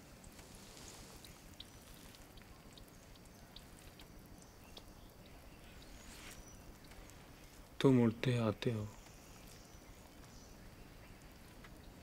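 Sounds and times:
low hiss: 0:00.0 - 0:12.0
faint water drips: 0:00.1 - 0:12.0.

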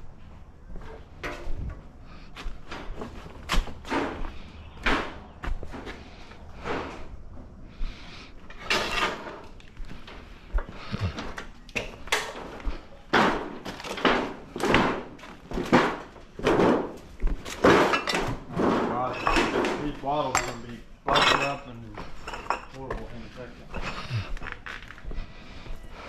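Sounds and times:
metal parts knocking and clanking: 0:08.5 - 0:09.6, 0:11.8 - 0:22.7.

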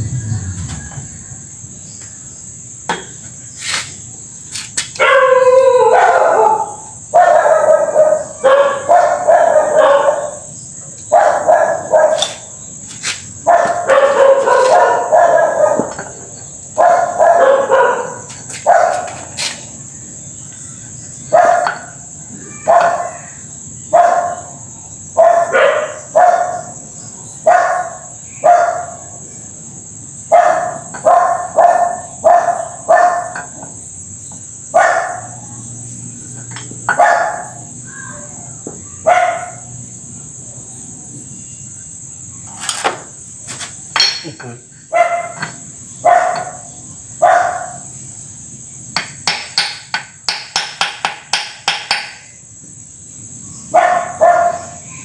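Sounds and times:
dog barking: 0:05.0 - 0:10.5, 0:11.1 - 0:12.4, 0:13.4 - 0:16.0, 0:16.8 - 0:19.2, 0:21.3 - 0:21.9, 0:22.6 - 0:23.2, 0:23.9 - 0:24.5, 0:25.2 - 0:26.8, 0:27.4 - 0:29.1, 0:30.3 - 0:33.4, 0:34.7 - 0:35.4, 0:36.9 - 0:37.7, 0:39.0 - 0:39.7, 0:44.9 - 0:45.4, 0:46.0 - 0:47.8, 0:53.7 - 0:54.8
hammer tapping on metal: 0:49.0 - 0:52.2.

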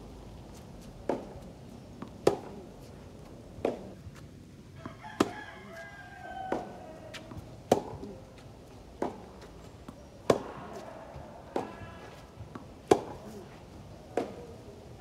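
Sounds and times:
racquet striking tennis ball: 0:01.0 - 0:01.4, 0:02.0 - 0:02.7, 0:03.6 - 0:04.0, 0:04.8 - 0:05.8, 0:06.5 - 0:08.2, 0:09.0 - 0:13.5, 0:14.1 - 0:14.6
tennis ball bouncing: 0:01.0 - 0:02.7, 0:03.6 - 0:04.2, 0:04.8 - 0:14.6.

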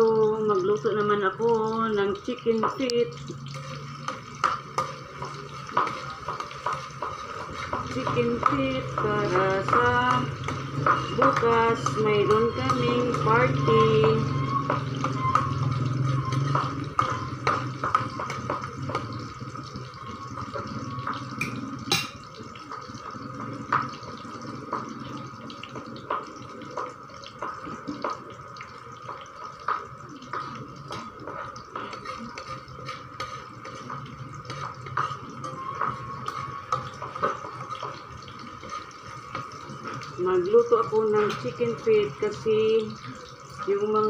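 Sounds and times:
wok frying sizzle: 0:00.0 - 0:44.0
metal spatula scraping pan: 0:03.5 - 0:19.0, 0:30.3 - 0:39.6.

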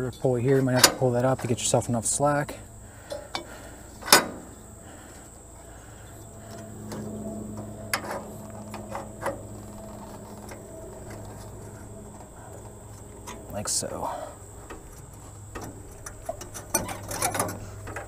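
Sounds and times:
steady low hum: 0:00.0 - 0:18.0
light clicks and knocks: 0:14.6 - 0:18.0.

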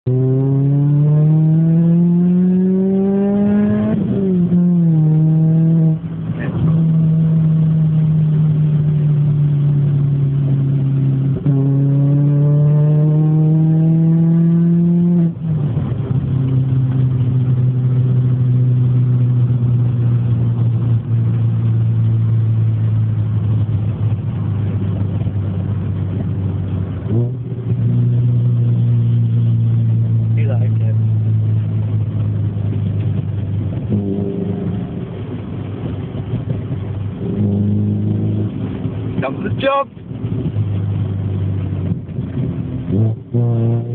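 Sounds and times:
car engine revving hard: 0:00.1 - 0:20.6, 0:33.2 - 0:43.9.

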